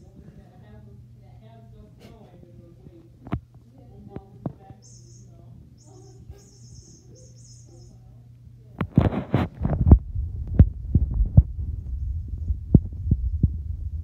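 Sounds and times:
low steady hum: 0.0 - 14.0
rubbing on microphone: 8.8 - 14.0.

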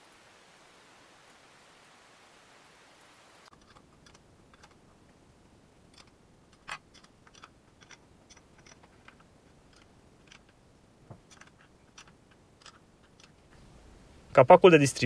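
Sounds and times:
wrench clicking on bolts: 5.9 - 10.6, 11.2 - 13.4.

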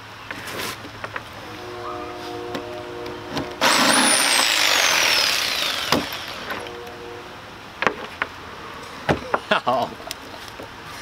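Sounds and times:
power saw cutting plywood: 2.5 - 7.0.

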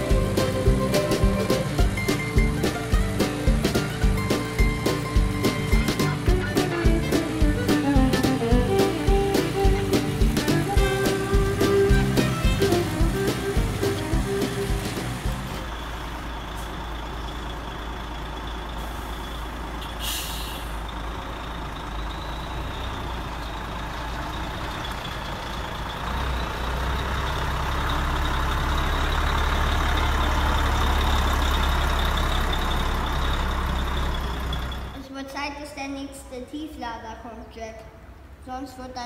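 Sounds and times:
model truck engine rumble: 0.0 - 35.0
short hiss: 20.0 - 20.8.

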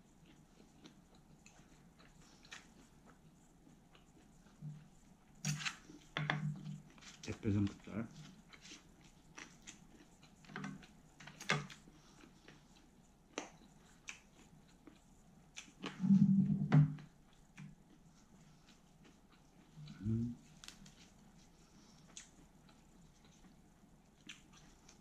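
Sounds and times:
chewing lettuce wrap: 0.0 - 16.4, 17.0 - 25.0.

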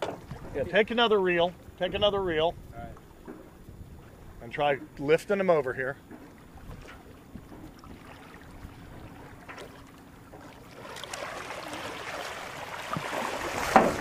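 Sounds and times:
lapping water: 6.1 - 14.0
fish splashing in water: 6.4 - 14.0.

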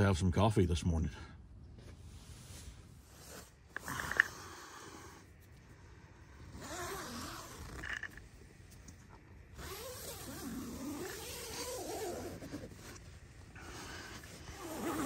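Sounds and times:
tent fabric rustling: 1.8 - 4.2, 6.5 - 8.2, 9.5 - 15.0
tent zipper: 2.2 - 5.2, 6.4 - 8.4, 9.5 - 15.0.

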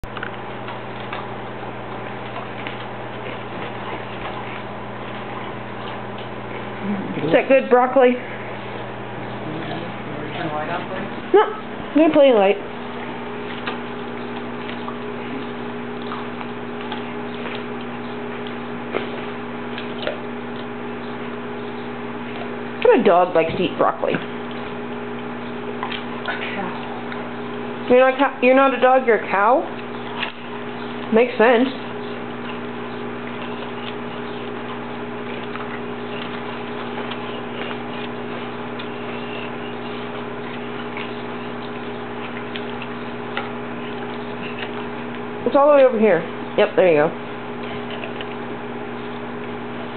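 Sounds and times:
electrical hum: 0.0 - 49.9
dog crunching broccoli: 0.1 - 7.4, 8.5 - 49.9.

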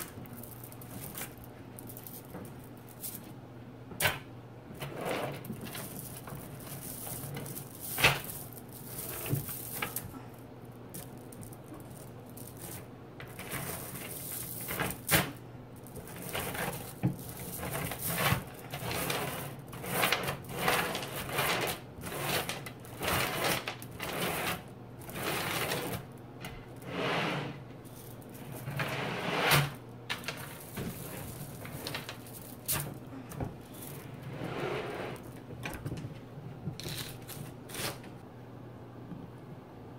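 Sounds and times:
magnet balls clicking and rattling: 0.0 - 3.3, 4.8 - 26.8, 29.7 - 34.2, 36.7 - 38.0.

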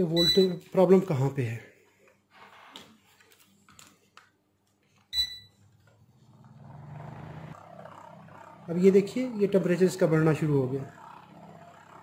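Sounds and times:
short electronic beep: 5.1 - 5.6.

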